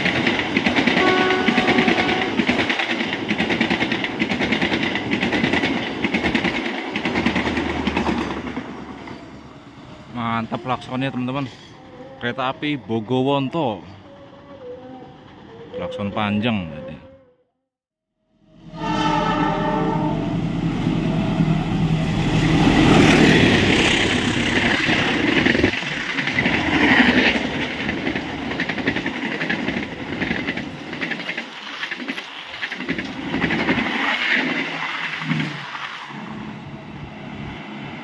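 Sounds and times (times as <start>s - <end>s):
coaches clicking over rail joints: 0.0s - 9.5s, 23.7s - 35.8s
train rushing past: 0.0s - 15.9s, 18.4s - 38.0s
locomotive horn: 1.0s - 2.4s, 18.5s - 21.7s.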